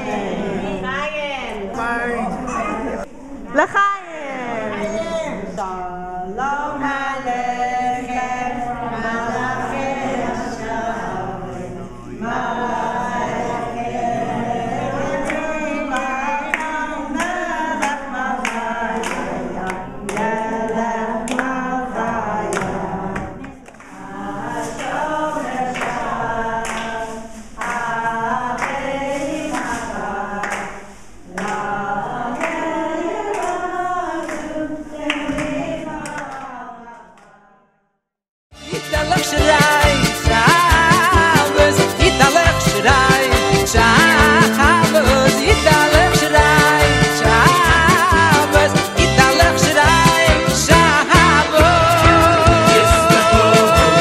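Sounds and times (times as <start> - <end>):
group singing: 0.0 - 3.1, 4.5 - 37.8, 38.6 - 54.0
hands clapping: 15.3 - 20.4, 22.5 - 24.0, 31.4 - 31.6, 38.9 - 54.0.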